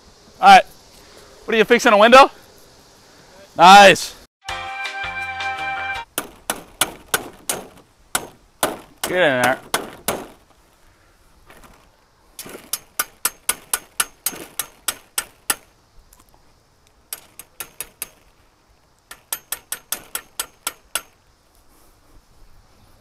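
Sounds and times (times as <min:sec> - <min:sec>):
hammer striking stake: 0:06.1 - 0:10.4, 0:12.4 - 0:15.7, 0:17.1 - 0:18.3, 0:19.1 - 0:21.2.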